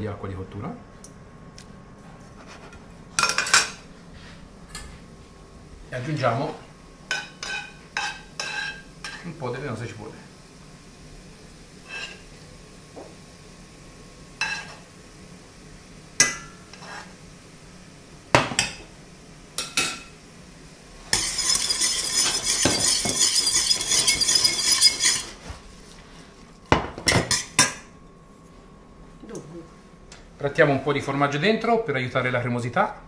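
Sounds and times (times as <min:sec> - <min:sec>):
pasta stirred in hot pan: 0:07.1 - 0:09.4, 0:21.0 - 0:27.6
metal spoon clinking against pans: 0:21.2 - 0:25.3.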